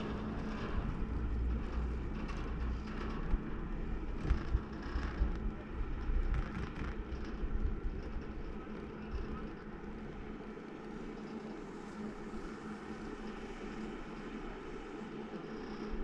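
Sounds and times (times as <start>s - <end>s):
wind buffeting microphone: 0.0s - 9.9s.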